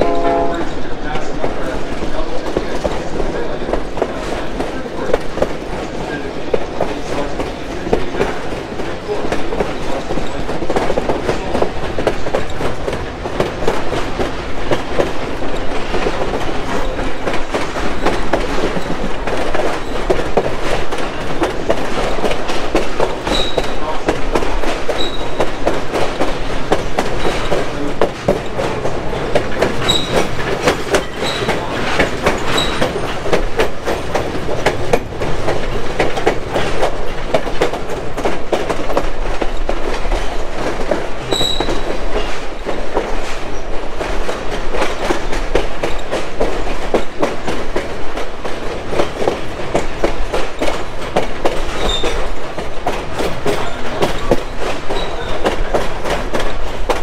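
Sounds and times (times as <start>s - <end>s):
train wheels rumbling on track: 0.0s - 57.0s
wheel squeaks: 23.2s - 23.8s, 25.0s - 25.4s, 29.8s - 33.2s, 41.3s - 41.9s, 51.7s - 52.2s, 53.6s - 55.4s.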